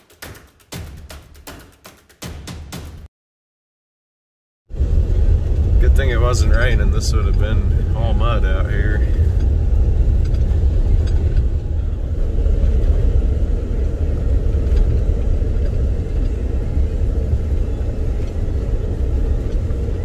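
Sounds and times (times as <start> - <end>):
car engine: 4.7 - 20.0
tyres rumbling on dirt road: 4.7 - 20.0.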